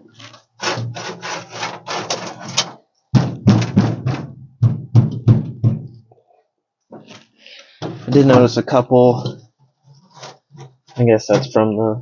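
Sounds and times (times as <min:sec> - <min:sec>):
hand scraping rusty metal: 0:00.0 - 0:02.8, 0:07.0 - 0:11.7.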